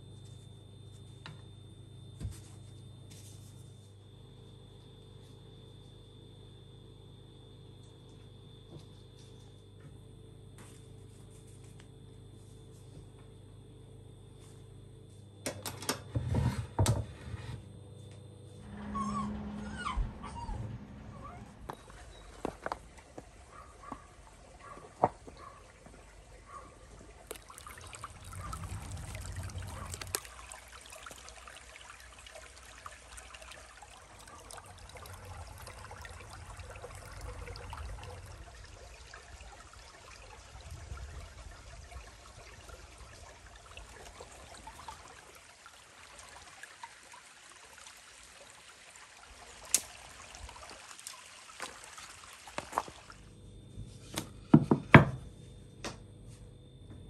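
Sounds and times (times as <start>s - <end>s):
stream trickling over rocks: 26.9s - 53.2s.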